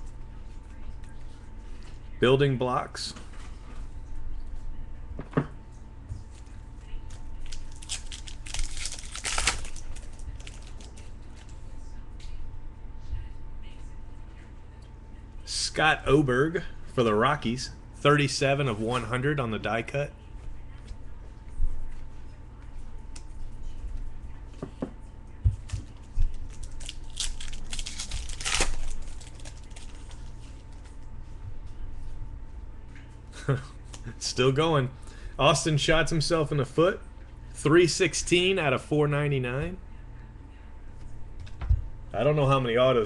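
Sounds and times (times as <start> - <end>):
foil wrapper crinkling: 7.1 - 11.5, 26.3 - 31.0.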